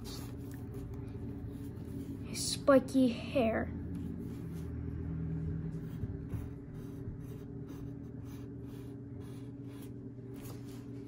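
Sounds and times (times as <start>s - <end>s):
pencil scratching on paper: 0.0s - 2.6s, 5.8s - 10.6s
steady low hum: 0.0s - 11.0s.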